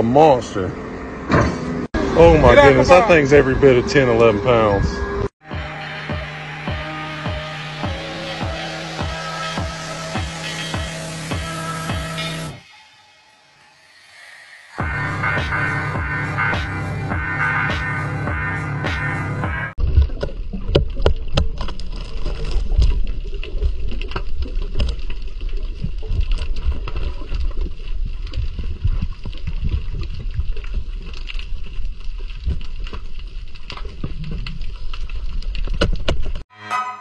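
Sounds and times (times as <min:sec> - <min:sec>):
low underwater rumble: 0:19.8 - 0:36.4
sharp clicks and crackles: 0:19.8 - 0:36.4.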